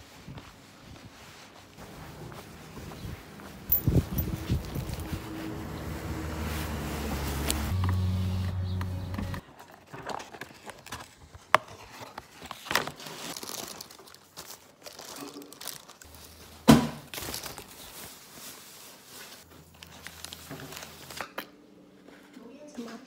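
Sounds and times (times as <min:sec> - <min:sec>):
paper packaging crinkling: 0:09.4 - 0:21.3.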